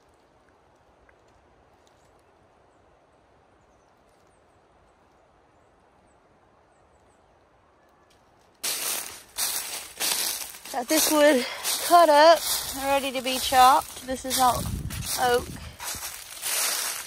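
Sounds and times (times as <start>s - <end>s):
loud rustling close to microphone: 8.6s - 17.0s.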